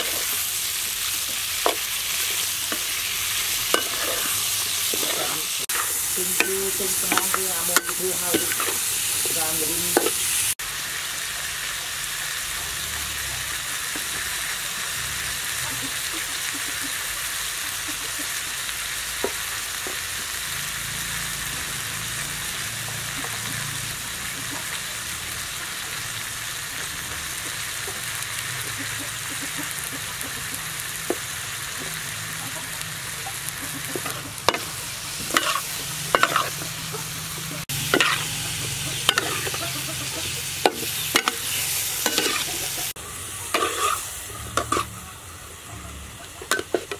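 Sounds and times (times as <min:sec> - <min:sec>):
metal spatula scraping wok: 0:00.0 - 0:10.6, 0:33.8 - 0:46.9
food sizzling in a wok: 0:00.0 - 0:46.9.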